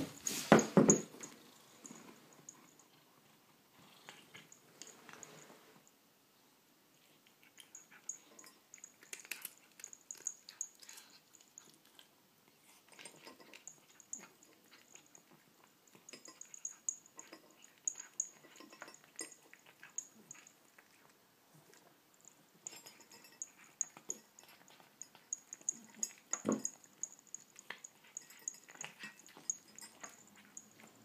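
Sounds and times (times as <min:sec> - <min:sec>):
cat crunching dry kibble: 0:08.8 - 0:12.1.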